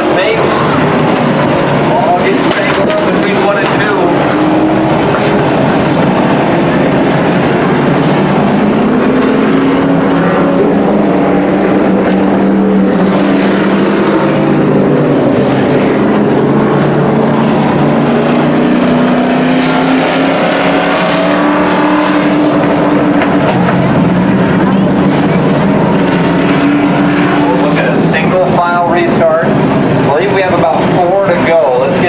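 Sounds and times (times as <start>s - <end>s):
race truck engines at speed: 0.0s - 32.0s.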